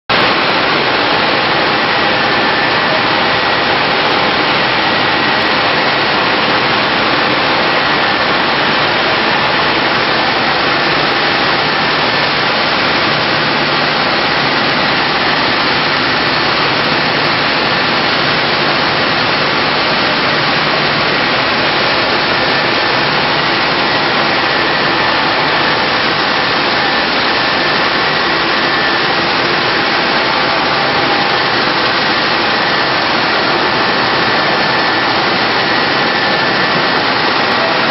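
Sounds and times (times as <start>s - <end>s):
loud steady machine noise: 0.1s - 37.9s.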